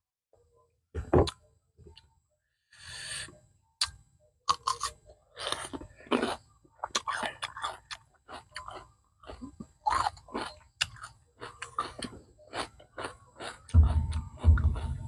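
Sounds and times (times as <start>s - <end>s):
person chewing food: 3.8s - 15.0s
dull low thumps: 13.7s - 15.0s.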